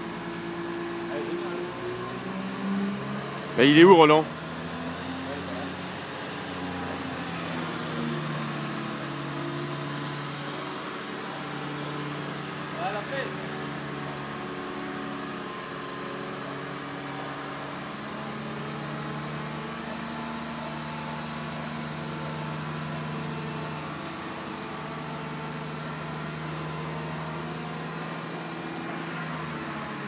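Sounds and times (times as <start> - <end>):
crane engine running: 0.0 - 30.0.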